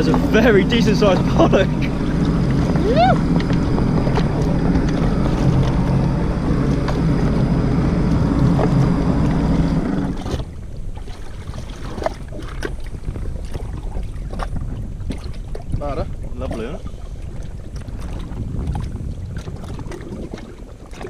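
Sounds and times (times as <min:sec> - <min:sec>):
jet ski engine idling: 0:00.0 - 0:11.0
water lapping: 0:00.0 - 0:21.0.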